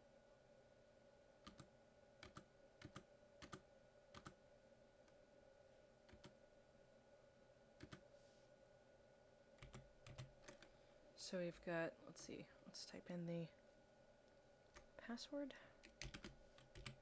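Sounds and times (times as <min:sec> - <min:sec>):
faint steady hum: 0:00.0 - 0:17.0
computer keyboard keystrokes: 0:01.4 - 0:04.4, 0:06.1 - 0:06.3, 0:07.8 - 0:08.0, 0:09.6 - 0:10.7, 0:15.8 - 0:17.0.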